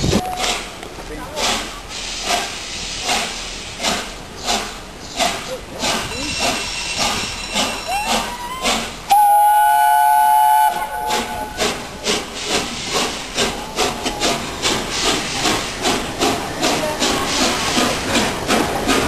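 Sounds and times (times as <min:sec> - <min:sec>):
steam locomotive exhaust beats: 0:00.0 - 0:19.0
steam locomotive whistle: 0:07.6 - 0:11.8.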